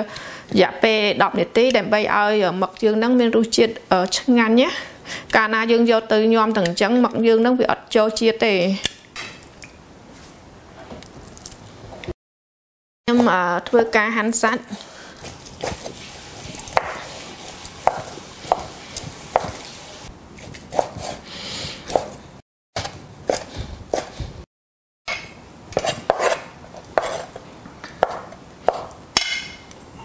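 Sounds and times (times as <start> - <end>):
knife slicing meat: 15.2 - 19.7.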